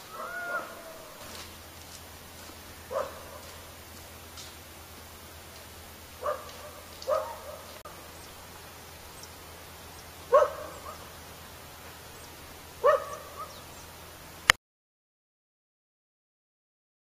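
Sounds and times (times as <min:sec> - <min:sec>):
dog barking: 0:00.2 - 0:01.0, 0:02.8 - 0:03.7, 0:06.2 - 0:07.8, 0:10.3 - 0:11.1, 0:12.8 - 0:13.6.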